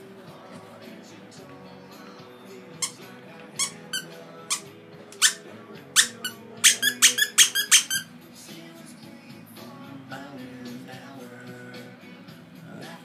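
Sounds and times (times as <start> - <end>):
squeaky dog toy squeaking: 2.8 - 8.1.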